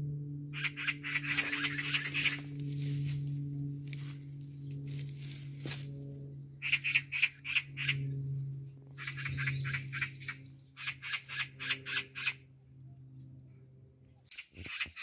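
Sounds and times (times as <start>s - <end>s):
magpies rattling chatter: 0.5s - 2.8s, 6.6s - 8.2s, 8.9s - 12.5s, 14.3s - 15.0s.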